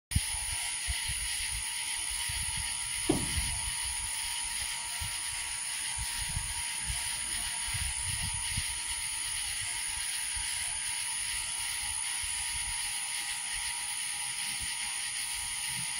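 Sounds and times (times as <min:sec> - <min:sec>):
low thumps: 0:03.0 - 0:03.8.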